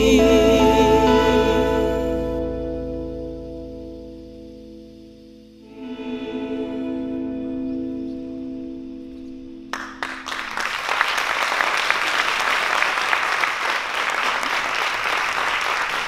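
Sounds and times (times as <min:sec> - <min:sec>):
audience applause: 0:09.7 - 0:16.0.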